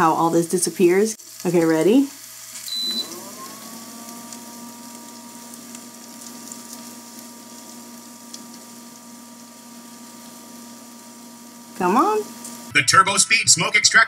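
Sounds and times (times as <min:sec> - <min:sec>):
fan whirring hum: 0:00.0 - 0:13.7
short electronic beep: 0:02.7 - 0:03.1.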